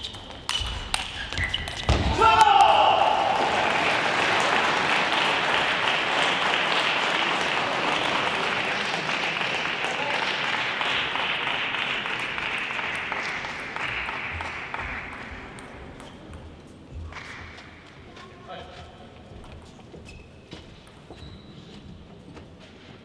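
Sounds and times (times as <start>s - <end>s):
audience applauding: 2.5s - 15.5s.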